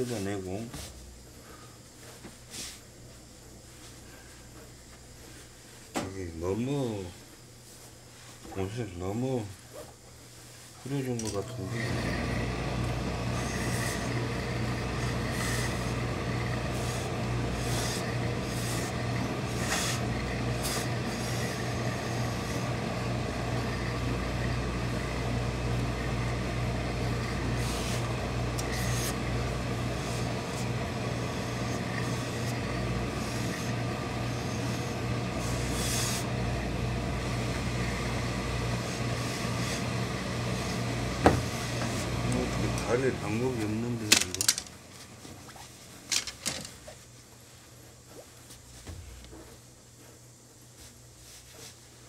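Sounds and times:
low machine hum: 0.0s - 52.0s
steam iron hissing: 10.9s - 43.8s.

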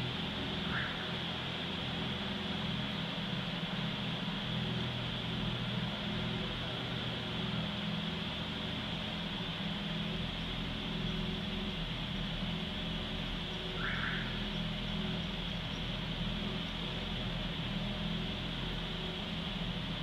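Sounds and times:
constant high hiss: 0.0s - 20.0s
low mechanical hum: 0.0s - 20.0s.

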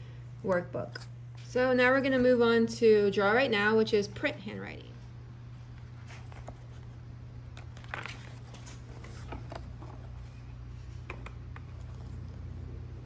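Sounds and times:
steady low hum: 0.0s - 13.0s
paper pages flipping: 5.8s - 12.6s.

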